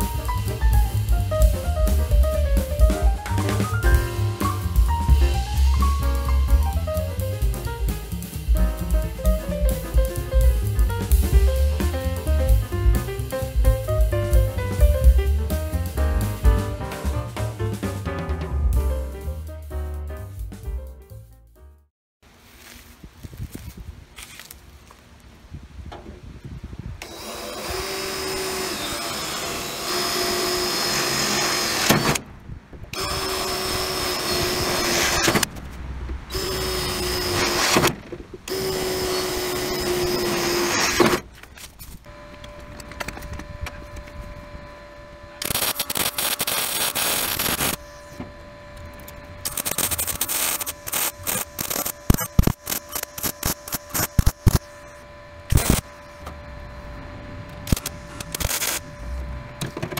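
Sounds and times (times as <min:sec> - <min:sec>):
welding crackling tacks: 0:00.0 - 0:18.0, 0:45.4 - 0:54.9, 0:55.5 - 0:56.4, 0:57.5 - 0:59.0
hissing burst: 0:00.0 - 0:18.1, 0:32.9 - 0:41.3, 0:45.3 - 0:48.2, 0:49.3 - 0:56.2
steady welder hum: 0:00.0 - 0:19.3, 0:27.0 - 0:37.9, 0:38.5 - 0:59.9
cordless drill drilling into steel: 0:27.0 - 0:32.2, 0:33.0 - 0:35.5, 0:36.3 - 0:37.9, 0:38.5 - 0:41.2, 0:45.4 - 0:48.2, 0:49.4 - 0:56.1, 0:57.7 - 0:59.0.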